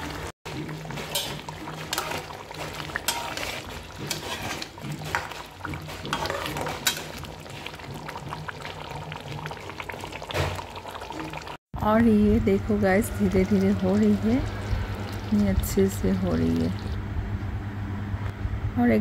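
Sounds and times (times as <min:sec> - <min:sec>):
curry simmering in a pan: 0:00.5 - 0:11.6
spatula scraping metal pan: 0:00.7 - 0:07.9.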